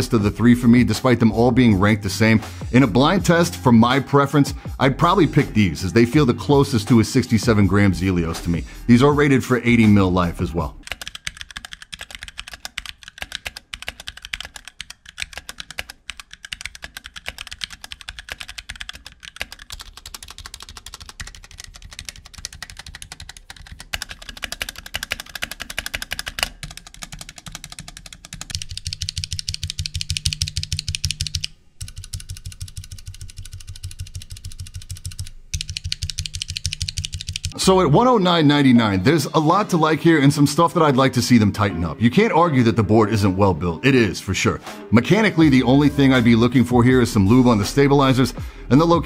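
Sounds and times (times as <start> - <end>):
mechanical keyboard typing: 10.6 - 37.6.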